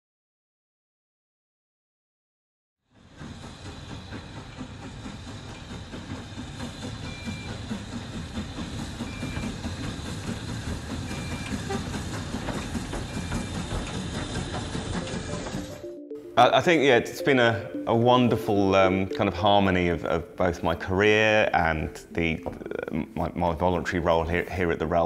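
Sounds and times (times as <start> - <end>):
wheels rumbling on rail: 2.8 - 15.8.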